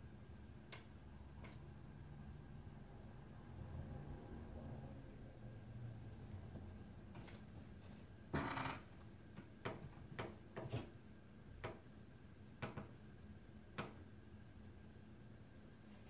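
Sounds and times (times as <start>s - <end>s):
light irregular knocks and clicks: 12.6s - 13.0s.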